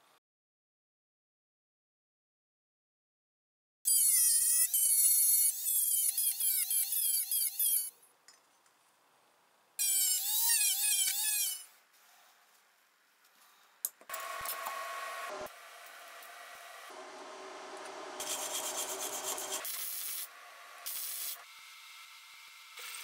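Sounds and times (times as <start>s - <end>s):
rotary tool grinding metal: 18.2s - 21.4s.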